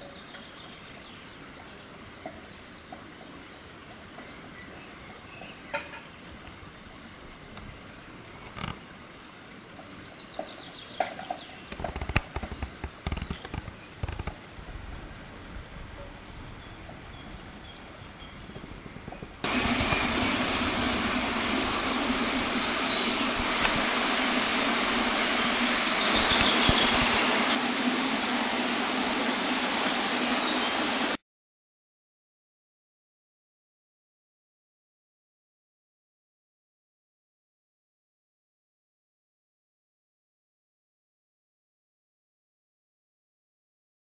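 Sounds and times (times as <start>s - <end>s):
loud steady rushing noise: 18.8s - 31.2s.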